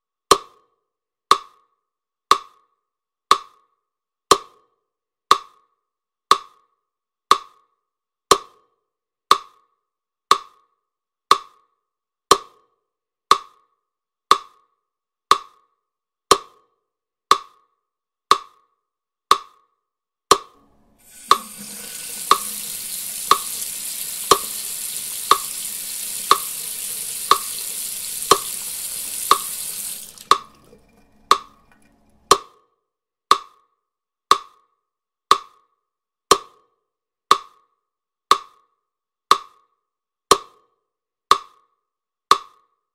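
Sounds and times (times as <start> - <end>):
wood-block ticking: 1.3 - 1.6, 2.3 - 2.6, 3.3 - 3.6, 5.3 - 5.6, 6.3 - 6.6, 7.3 - 7.6, 8.3 - 8.7, 9.3 - 9.6, 10.3 - 10.7, 11.3 - 11.6, 13.3 - 13.7, 14.3 - 14.7, 15.3 - 15.7, 16.3 - 16.7, 17.3 - 17.7, 18.3 - 18.7, 19.3 - 19.7, 20.3 - 32.6, 33.3 - 33.6, 34.3 - 34.6, 35.3 - 35.6, 38.3 - 38.6, 39.3 - 39.6, 41.3 - 41.6.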